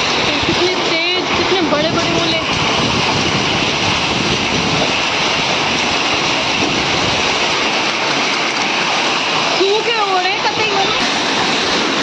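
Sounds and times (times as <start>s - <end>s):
heavy rain and hail pelting: 0.0s - 12.0s.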